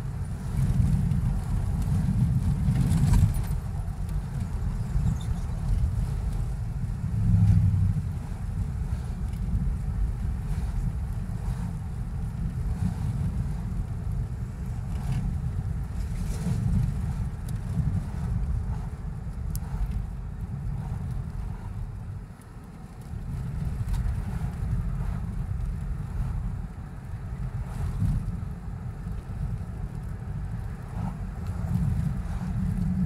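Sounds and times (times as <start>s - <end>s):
car cabin road and engine rumble: 0.0s - 33.0s.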